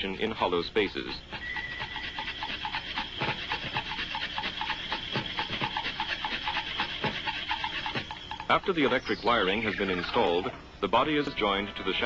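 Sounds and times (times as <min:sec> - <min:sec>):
factory machinery rhythmic beat: 0:01.8 - 0:09.0.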